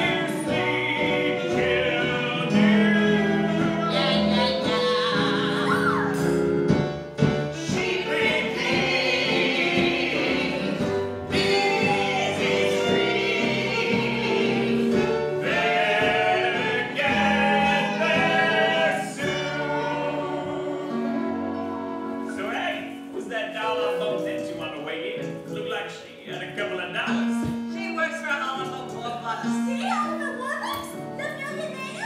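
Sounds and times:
man and women singing: 0:00.0 - 0:06.2, 0:07.5 - 0:21.4
instrumental accompaniment: 0:00.0 - 0:32.0.

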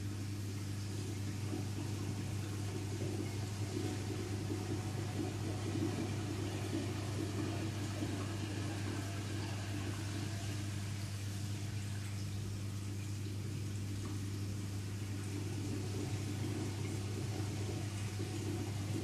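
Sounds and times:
pump hum: 0:00.0 - 0:19.0
running water: 0:00.0 - 0:19.0.

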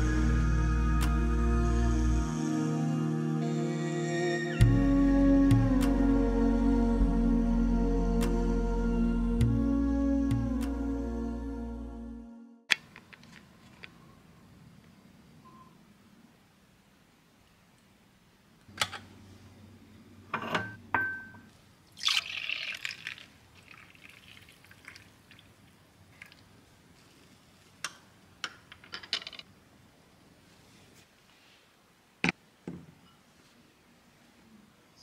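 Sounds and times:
glass and spoon clinking: 0:20.4 - 0:22.2
drink pouring into glass mug: 0:21.9 - 0:26.5.

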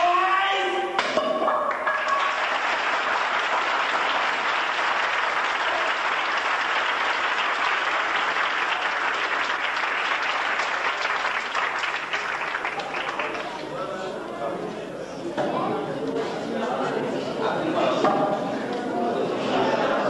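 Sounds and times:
audience applauding: 0:01.7 - 0:13.9.

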